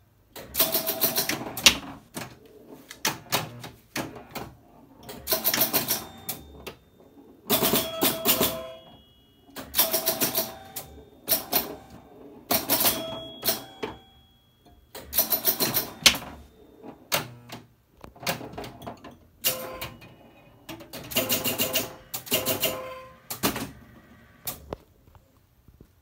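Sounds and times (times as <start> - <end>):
pinball machine clicking: 0.3 - 24.8
brief ringing tone: 5.9 - 12.2, 12.8 - 15.0.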